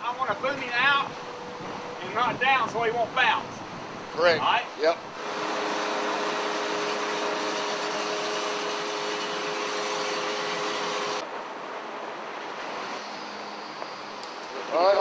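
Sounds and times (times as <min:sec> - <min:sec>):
crane engine whining: 0:05.0 - 0:11.2.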